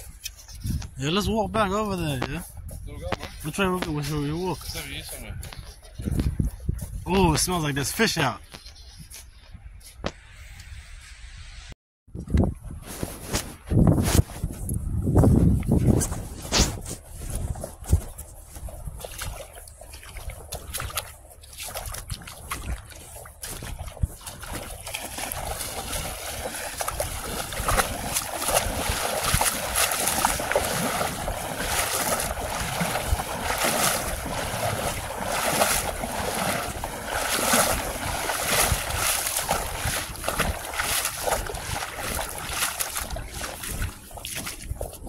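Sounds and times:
wind buffeting microphone: 0.0s - 7.6s, 12.1s - 45.0s
feet wading through water: 15.6s - 45.0s.

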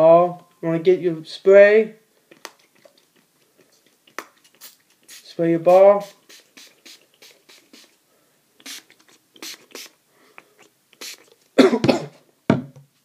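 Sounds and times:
spray bottle hissing: 4.2s - 8.0s, 8.6s - 11.4s.

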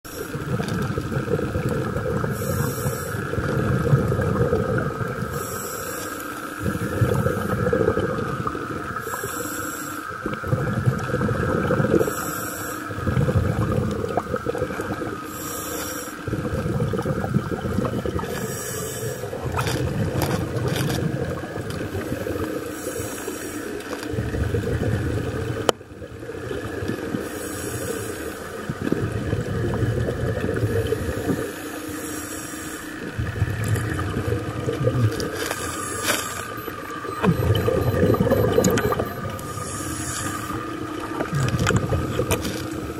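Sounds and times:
exhaled air bubbling: 0.0s - 42.9s
faint whine: 0.1s - 42.9s
regulator inhalation hiss: 2.3s - 3.4s, 5.3s - 7.5s, 9.0s - 10.2s, 12.0s - 13.0s, 15.2s - 16.3s, 18.3s - 19.4s, 22.1s - 23.8s, 27.2s - 28.6s, 30.9s - 33.1s, 35.6s - 36.6s, 39.4s - 40.7s.

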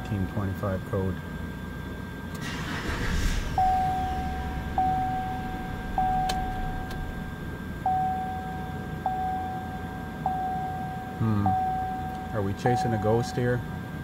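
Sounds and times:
truck starter cranking: 2.4s - 7.5s
truck engine running: 2.4s - 9.3s
dashboard warning chime: 3.6s - 13.8s.

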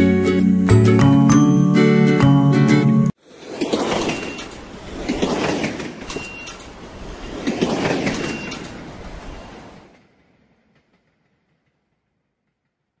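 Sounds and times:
train wheels on track: 3.3s - 13.0s.

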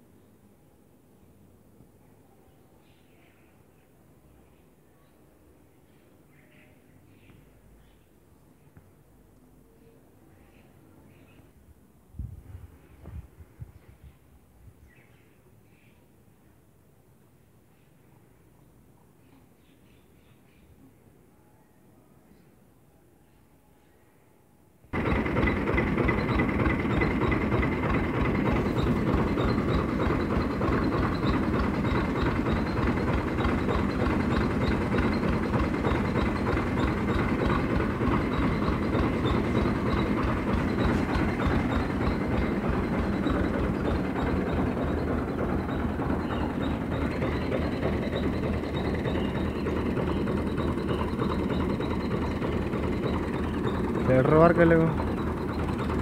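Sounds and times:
diesel tractor engine clattering: 25.0s - 56.0s.

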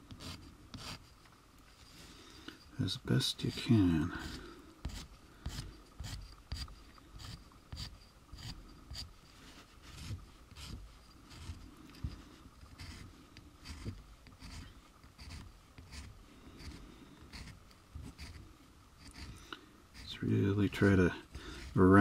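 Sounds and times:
sanding block scratching plastic: 3.5s - 9.1s, 12.7s - 18.4s, 19.0s - 19.4s.

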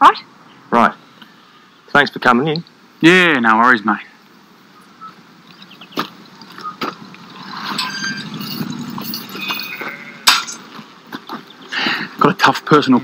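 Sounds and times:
glassy clinks: 7.2s - 10.7s.

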